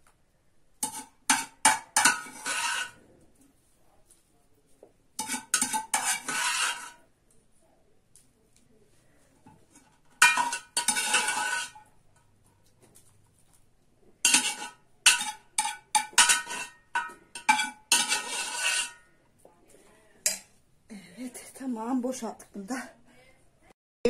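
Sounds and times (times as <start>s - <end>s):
metal ladle clinking on pots: 0.8s - 3.0s, 5.2s - 7.0s, 9.5s - 12.3s, 14.2s - 19.1s, 20.2s - 20.5s.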